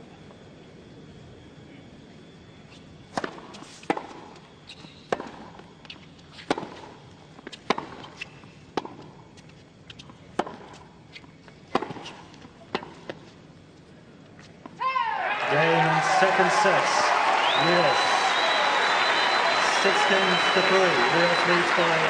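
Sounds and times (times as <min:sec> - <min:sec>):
tennis racket hitting ball: 0:11.7 - 0:13.2.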